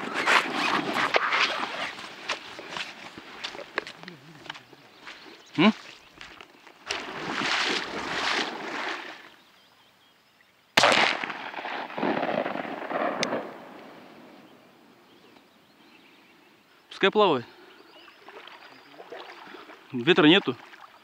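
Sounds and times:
shotgun shots with rolling echo: 10.8s - 14.4s.

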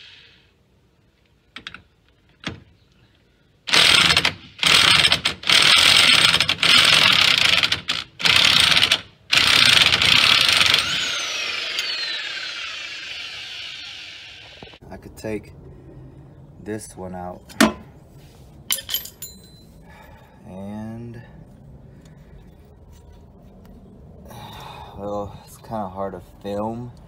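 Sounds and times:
motor winding down whine: 9.3s - 14.8s.

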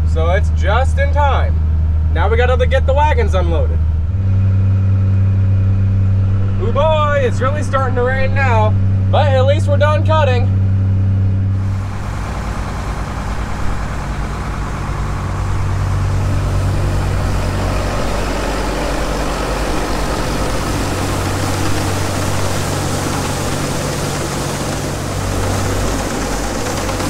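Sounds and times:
tractor engine running: 0.0s - 27.0s
grain hissing: 11.6s - 27.0s.

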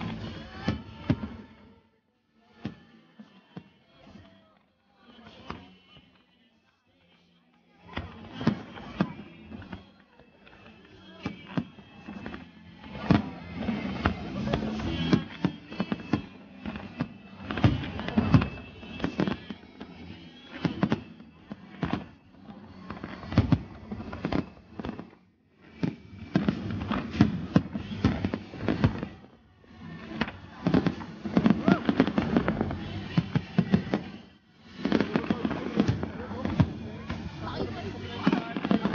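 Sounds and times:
fireworks banging and crackling: 8.0s - 38.9s.

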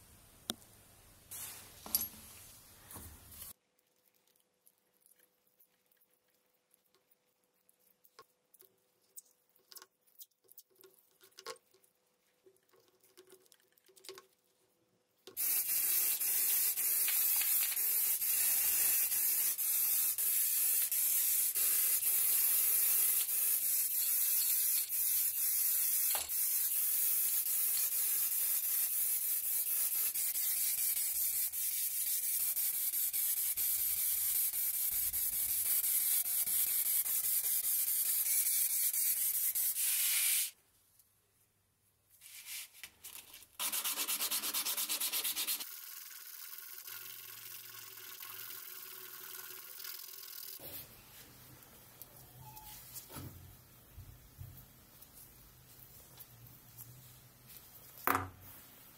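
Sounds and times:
spray paint hissing: 15.4s - 40.6s, 43.6s - 45.7s.

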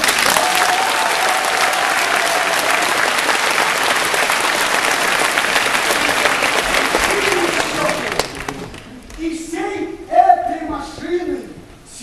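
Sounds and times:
audience applauding: 0.0s - 9.1s.

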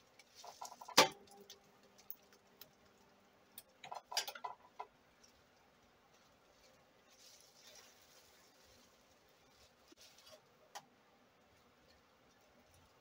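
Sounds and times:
bubble wrap crinkling: 0.0s - 3.2s, 5.2s - 10.7s
faint steady hum: 0.0s - 13.0s.

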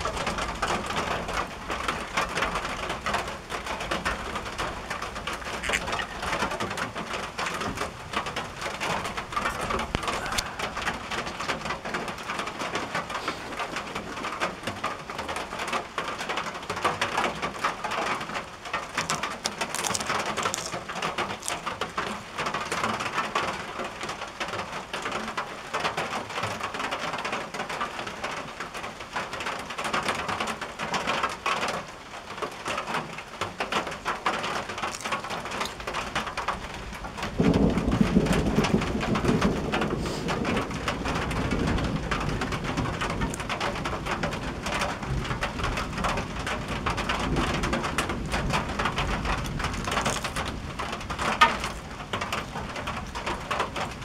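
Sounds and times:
thunder rumbling: 0.0s - 16.4s, 34.7s - 54.0s
rain on a tin roof: 0.0s - 54.0s.

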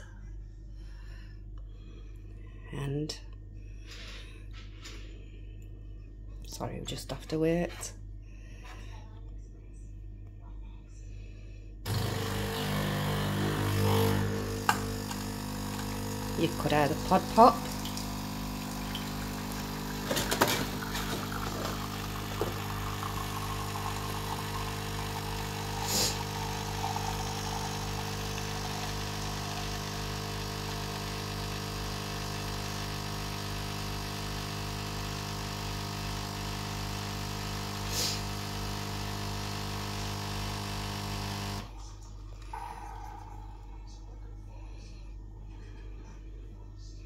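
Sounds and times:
coffee machine pump humming: 11.9s - 44.0s.

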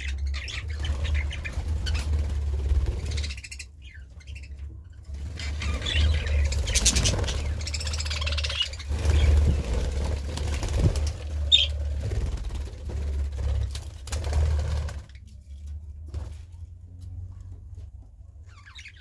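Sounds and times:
budgerigars chattering and chirping: 0.0s - 11.8s, 18.5s - 19.0s
low rumble: 0.0s - 19.0s.

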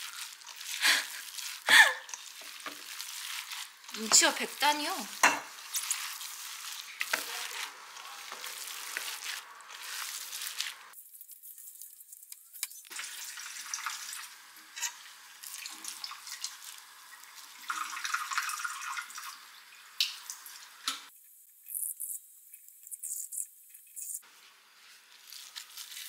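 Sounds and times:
wet squishing of ground meat: 0.0s - 11.0s, 24.7s - 26.0s.

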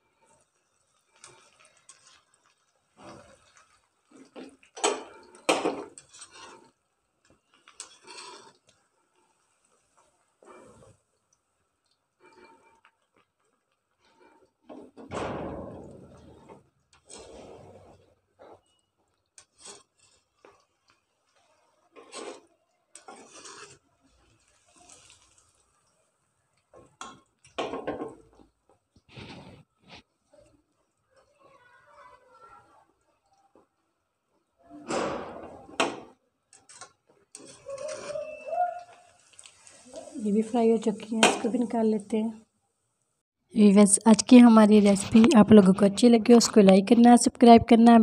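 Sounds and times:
chicken deep-frying in hot oil: 0.0s - 43.2s
skimmer scraping and clinking on pan: 3.0s - 8.7s, 22.0s - 25.6s.

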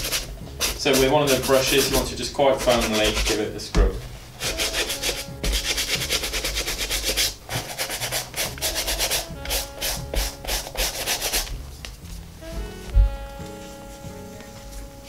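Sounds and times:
brush scrubbing leather shoe: 0.0s - 3.4s, 4.4s - 11.5s.

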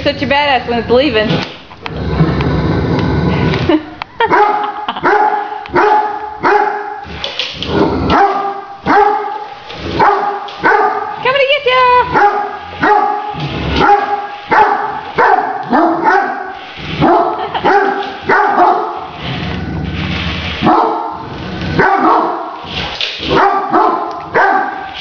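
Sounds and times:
dog barking deeply: 4.3s - 7.0s, 8.1s - 9.4s, 10.0s - 11.2s, 12.1s - 19.0s, 20.6s - 21.2s, 21.8s - 22.5s, 23.3s - 24.9s.

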